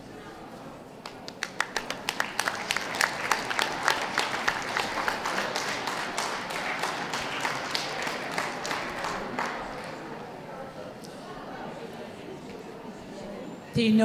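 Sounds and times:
audience applauding: 1.0s - 10.3s.

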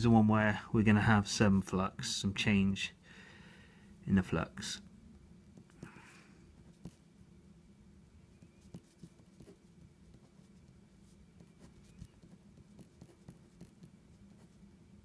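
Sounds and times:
low steady hum: 0.0s - 15.0s
ballpoint pen writing on paper: 8.4s - 10.5s, 11.4s - 14.6s.

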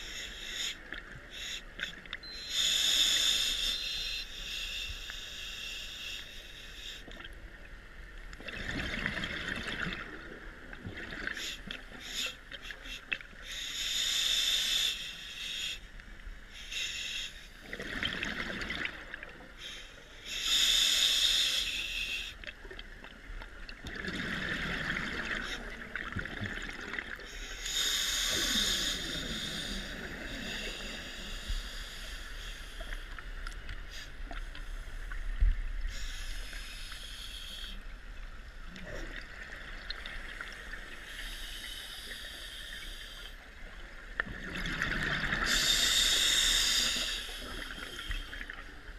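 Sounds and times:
regulator hissing inhalation: 0.0s - 7.1s, 11.4s - 15.9s, 19.6s - 22.4s, 27.3s - 33.2s, 35.9s - 37.8s, 45.4s - 48.6s
exhaled air bubbling: 23.6s - 27.3s.

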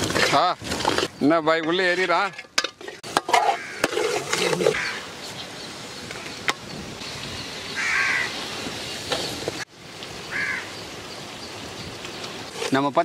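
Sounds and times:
background hiss: 0.0s - 13.0s
crow cawing: 3.4s - 3.9s, 4.7s - 5.1s, 7.8s - 8.4s, 10.3s - 10.7s.

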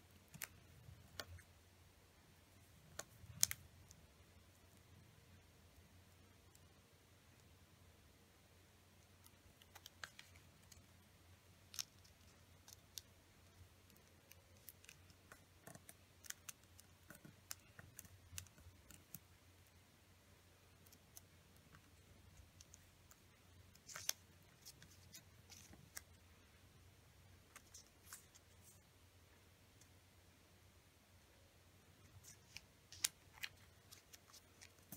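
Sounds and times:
faint low hum: 0.0s - 34.9s
paper being folded and creased: 23.7s - 26.2s, 32.1s - 34.9s.

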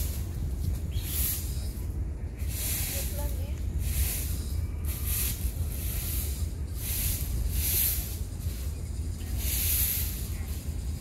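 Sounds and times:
rustling crunches in dry leaves: 0.0s - 1.8s, 2.4s - 11.0s
wind rumble on microphone: 0.0s - 11.0s.

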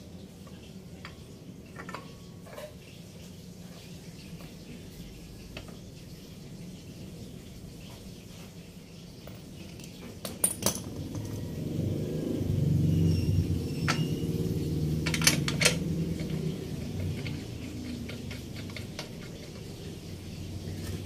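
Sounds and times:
metal parts clinking on concrete: 9.2s - 11.5s, 14.9s - 19.7s.

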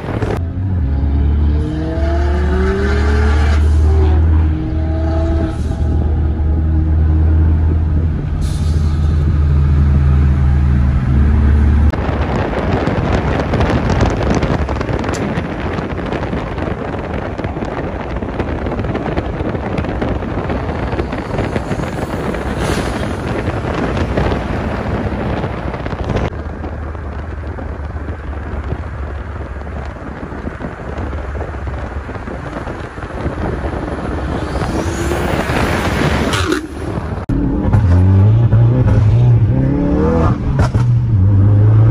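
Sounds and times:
wind and tyre noise: 0.0s - 41.9s.

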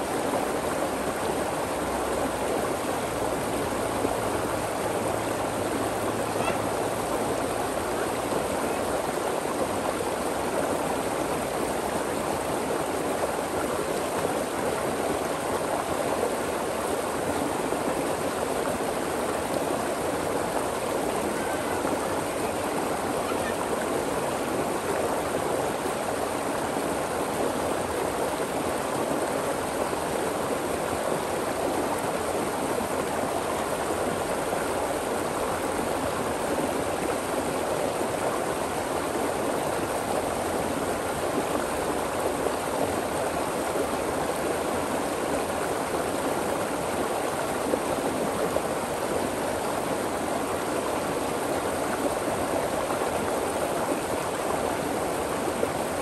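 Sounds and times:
stream flowing over rocks: 0.0s - 56.0s.

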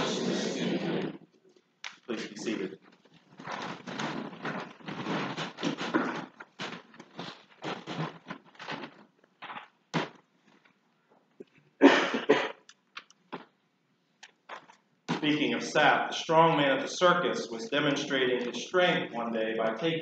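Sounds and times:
shuffling and knocks: 2.0s - 11.6s
clothes rustling: 2.0s - 11.8s.

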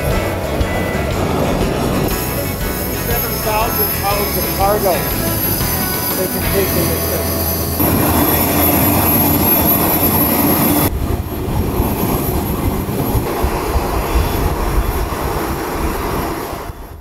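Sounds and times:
jet engines rumbling and whining: 0.0s - 17.0s.

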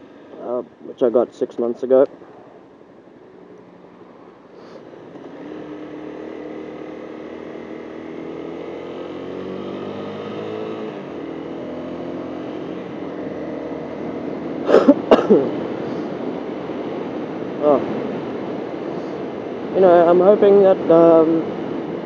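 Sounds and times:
motorcycle engine accelerating: 3.6s - 19.4s.

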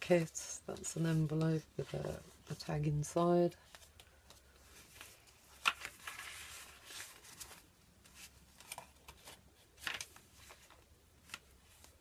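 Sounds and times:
paper rustling: 3.6s - 12.0s.

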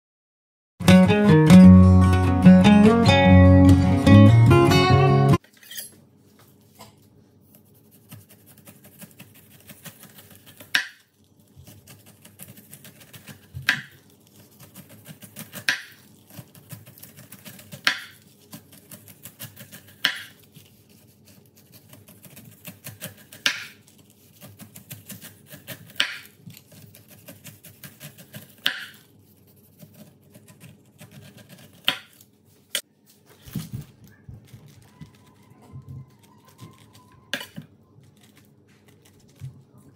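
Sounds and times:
knife sawing through pineapple skin: 7.6s - 10.8s, 11.6s - 32.2s.

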